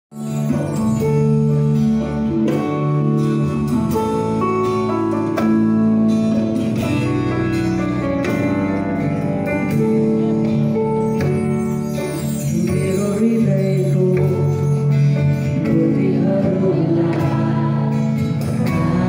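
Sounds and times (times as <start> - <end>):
bass line: 0.1 - 19.0
electric guitars: 0.1 - 19.0
drum kit beat: 0.4 - 14.6.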